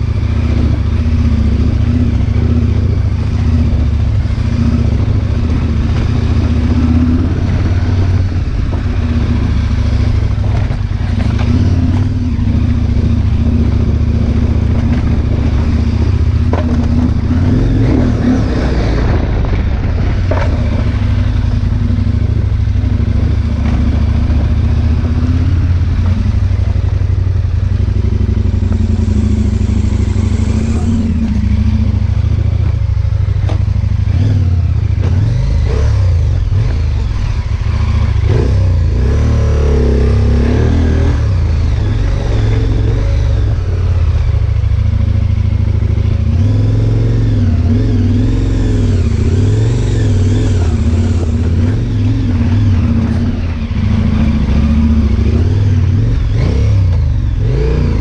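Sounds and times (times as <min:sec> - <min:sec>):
motorcycle engine running: 0:00.0 - 0:58.0
stones knocking under bike: 0:16.4 - 0:17.0.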